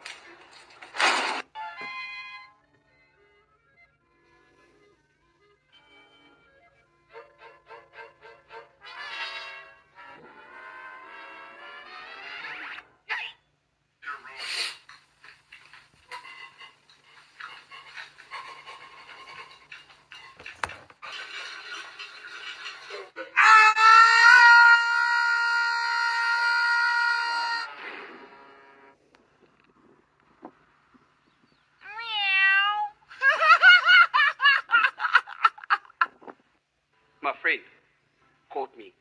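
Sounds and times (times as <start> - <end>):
man laughing heartily: 33.2 - 36.3.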